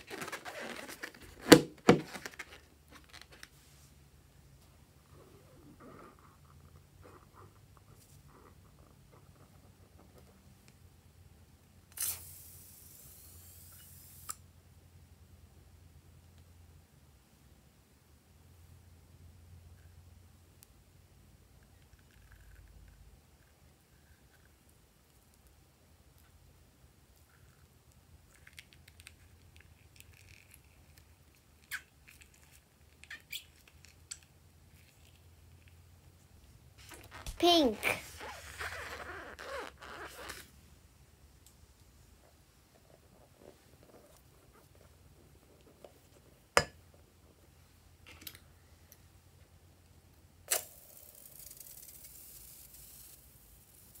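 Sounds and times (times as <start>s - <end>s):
rubbery balloon handling: 0.0s - 3.6s, 36.8s - 40.5s
high hiss of escaping air: 12.0s - 14.4s.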